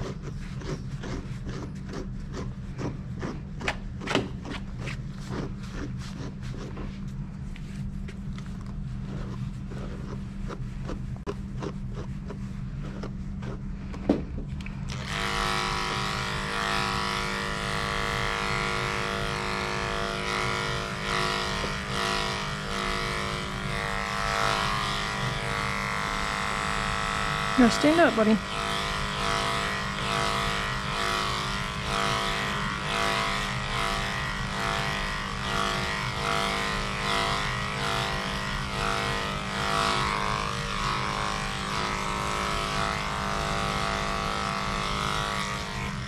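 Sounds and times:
electric clipper buzzing: 0.0 - 6.3, 12.9 - 46.0
brushing dog fur: 0.0 - 13.8, 14.9 - 46.0
low steady hum: 0.0 - 34.9.

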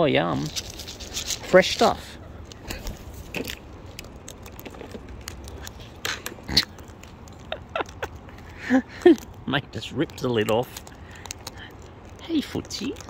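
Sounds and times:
beak clicking on plastic pot: 10.1 - 13.0.

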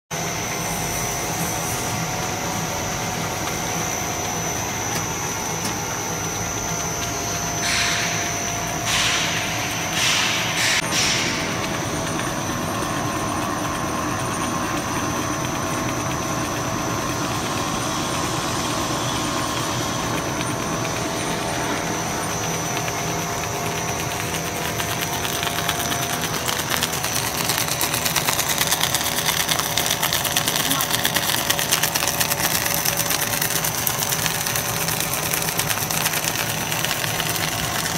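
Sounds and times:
machine drone with whine: 0.1 - 37.9
dense clatter of rapid clicks: 19.6 - 37.9.

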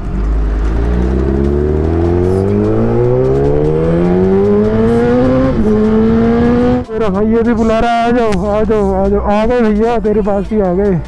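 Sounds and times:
motorcycle engine accelerating: 0.0 - 7.9.

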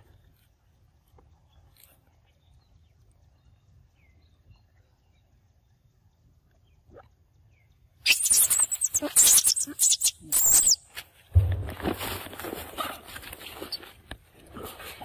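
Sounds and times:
monkeys screeching: 8.1 - 10.8.

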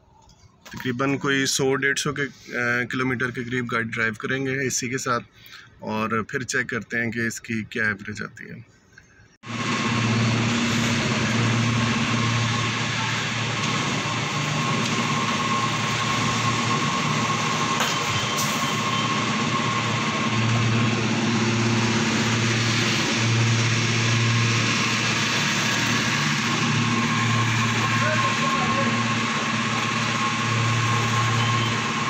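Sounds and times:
fuel pump humming: 9.5 - 32.0
thin whine: 9.5 - 32.0.

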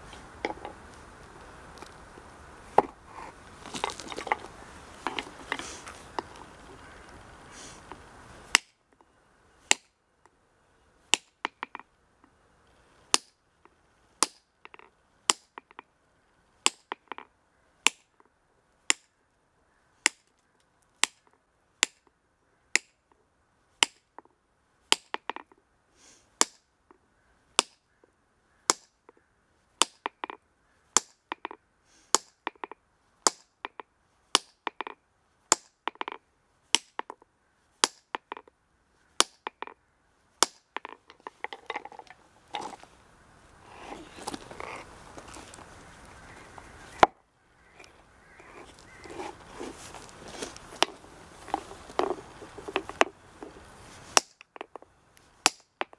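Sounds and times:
hammer striking granite: 29.8 - 30.4, 32.2 - 36.2, 36.8 - 37.2, 37.8 - 38.5, 39.2 - 39.8, 40.4 - 42.0, 54.2 - 54.8, 55.5 - 55.9.

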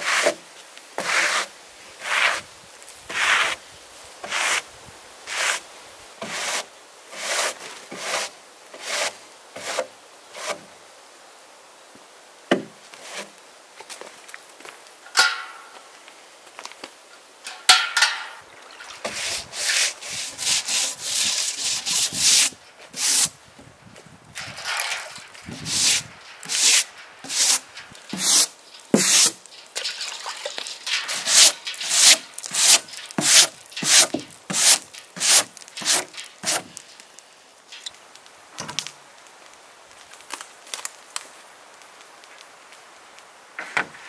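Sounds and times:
brush scrubbing wood: 0.0 - 0.4, 1.0 - 2.5, 3.1 - 3.6, 4.2 - 4.6, 5.3 - 5.6, 6.2 - 10.7, 13.0 - 13.3, 18.0 - 23.4, 24.4 - 37.0
water washing board: 17.5 - 23.3, 24.4 - 37.0.

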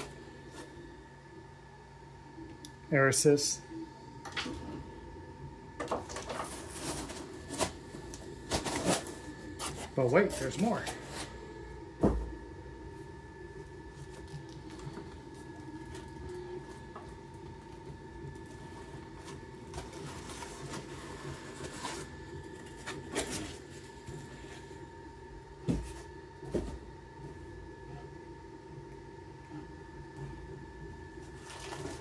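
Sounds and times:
foam insert scraping and rustling: 6.2 - 11.4, 18.6 - 24.8.

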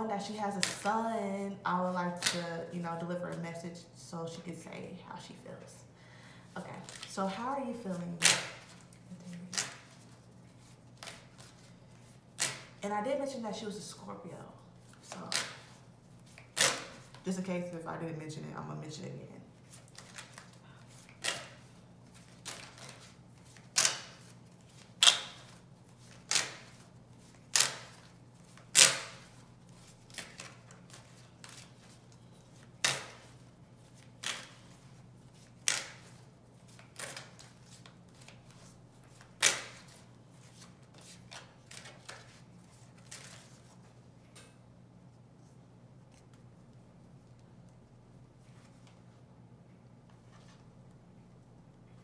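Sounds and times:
cards being shuffled: 6.8 - 12.8, 19.6 - 43.9.

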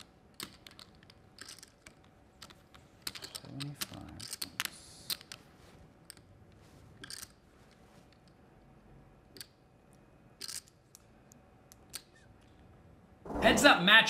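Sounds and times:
poker chips clicking: 0.4 - 5.4, 7.0 - 7.4, 10.4 - 10.8.

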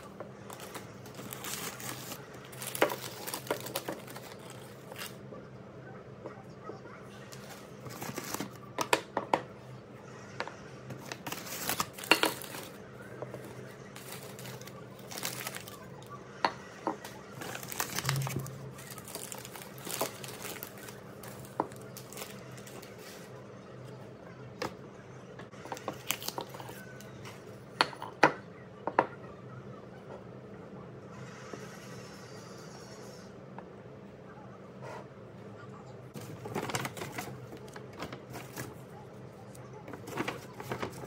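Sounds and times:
tissue paper crinkling: 0.0 - 5.2, 11.0 - 12.8, 14.0 - 15.8, 17.4 - 23.3.

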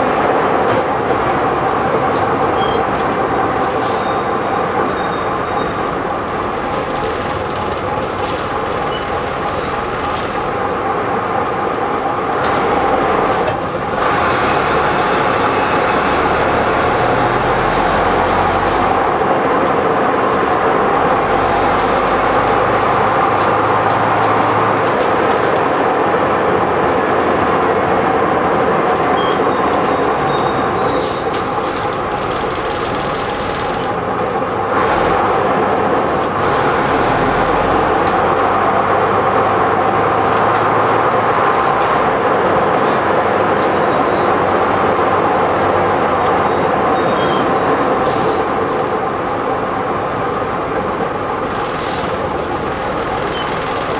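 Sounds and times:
bus engine whine: 0.0 - 53.9.

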